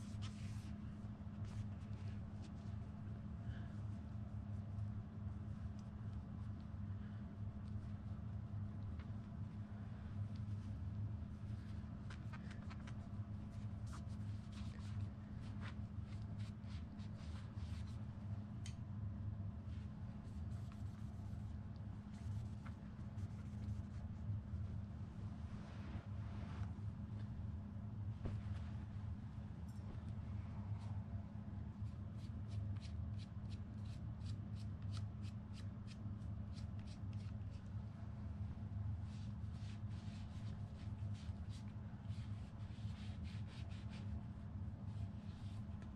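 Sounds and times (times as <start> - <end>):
cloth rag wiping fishing rod: 0.0 - 3.1, 10.6 - 18.2, 19.7 - 26.8, 39.0 - 45.9
steady low hum: 0.0 - 45.9.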